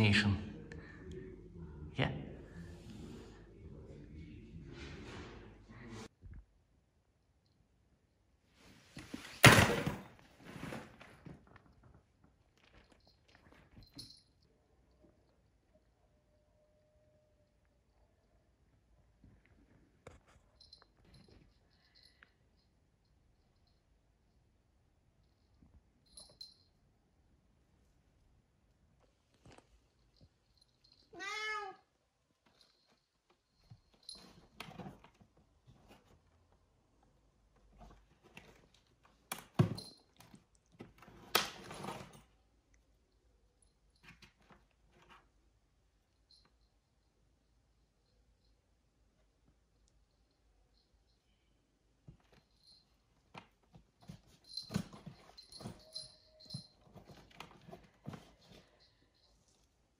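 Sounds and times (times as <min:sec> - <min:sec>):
cat meowing: 0:31.1 - 0:31.9
knocks and rustles: 0:53.2 - 0:58.9.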